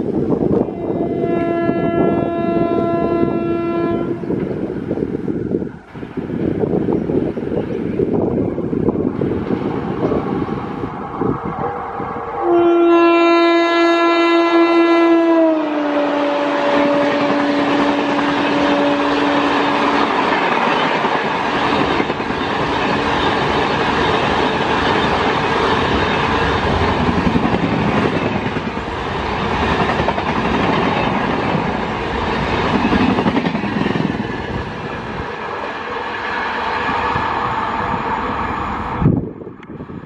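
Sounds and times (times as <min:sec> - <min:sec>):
train coaches rushing past: 0:00.0 - 0:13.6, 0:15.6 - 0:40.0
locomotive horn: 0:00.7 - 0:04.4, 0:12.3 - 0:20.0.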